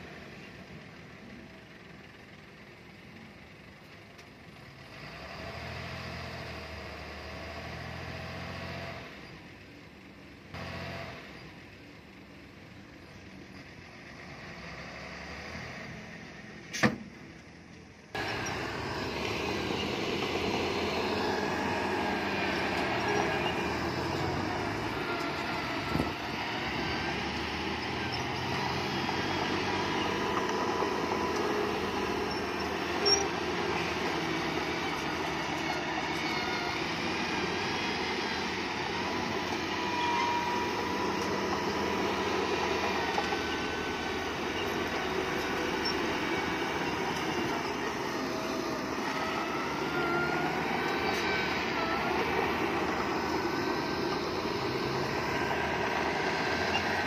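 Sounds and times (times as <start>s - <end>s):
bulldozer engine: 0.0s - 57.0s
steel tracks squealing: 18.2s - 57.0s.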